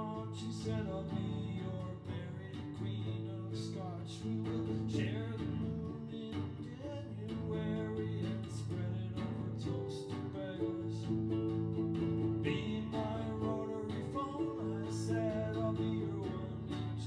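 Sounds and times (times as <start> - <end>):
plucked guitar music: 0.0 - 17.0.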